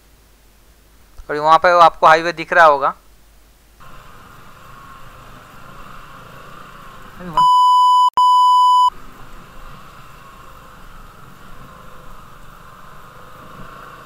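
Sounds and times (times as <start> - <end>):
motorcycle running slowly: 3.8 - 7.4, 8.9 - 14.0
censor bleep: 7.4 - 8.9.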